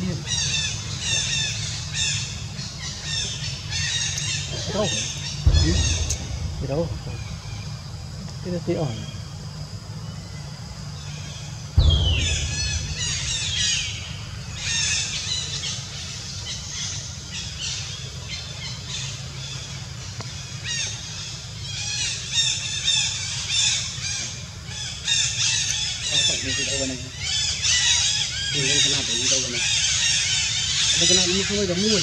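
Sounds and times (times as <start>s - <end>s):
low thump: 5.4s - 8.3s, 11.8s - 15.0s
monkeys squealing and screeching: 20.6s - 32.0s.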